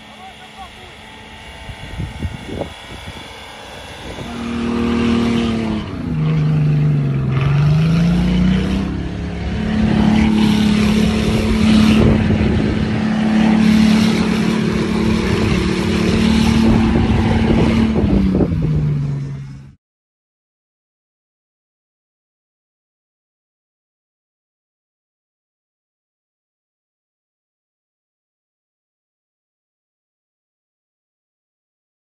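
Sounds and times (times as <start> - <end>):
engine revving hard: 0.0 - 19.8
wheels spinning in snow: 0.0 - 19.8.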